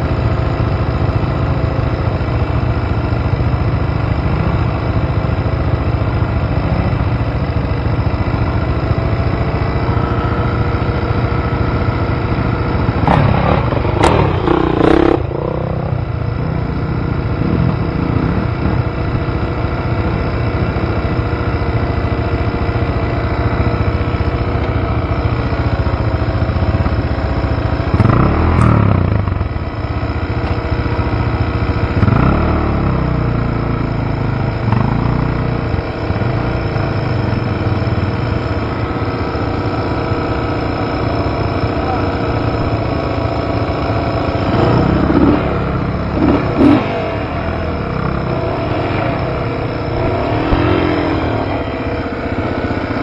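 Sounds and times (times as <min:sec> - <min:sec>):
dirt bike engines idling: 0:00.0 - 0:53.0
engine revving: 0:08.6 - 0:19.4, 0:27.8 - 0:29.5, 0:31.5 - 0:33.6, 0:38.1 - 0:53.0.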